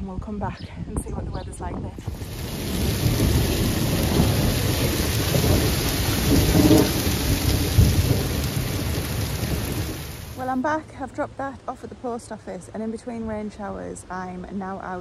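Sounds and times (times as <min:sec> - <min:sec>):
low rumble of thunder: 0:02.0 - 0:10.4
heavy rain on stone paving: 0:02.0 - 0:10.6.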